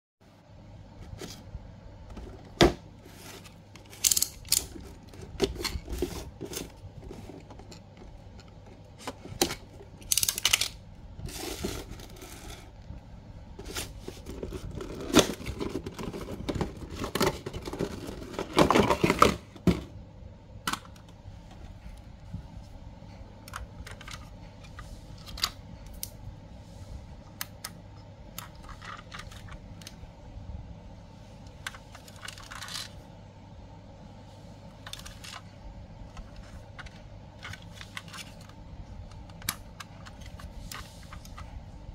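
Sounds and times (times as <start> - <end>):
cardboard packaging rustling: 2.1 - 8.2, 13.6 - 19.5.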